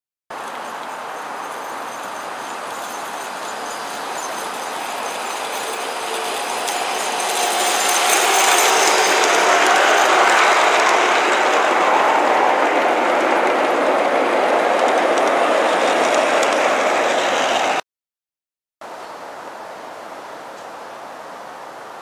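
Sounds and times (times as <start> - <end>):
model train wheels rolling on rail: 0.3 - 17.8
faint outdoor hiss: 18.8 - 22.0.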